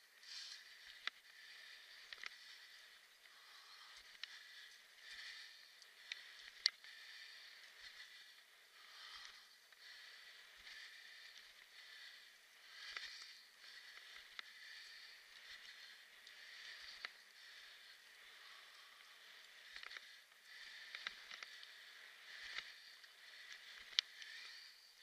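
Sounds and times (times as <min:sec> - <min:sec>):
sharp clicks from bumps: 0:01.9 - 0:08.1.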